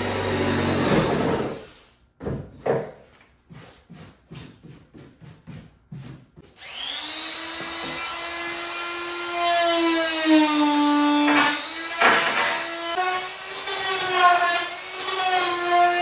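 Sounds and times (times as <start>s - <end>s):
power drill cutting: 0.0s - 1.6s, 6.6s - 16.0s.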